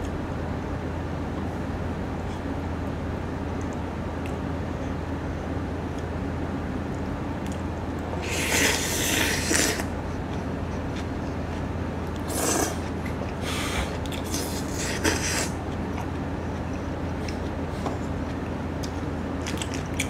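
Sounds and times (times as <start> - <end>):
steady low hum: 0.0 - 20.0
noisy slurping: 8.2 - 9.9, 12.2 - 15.6.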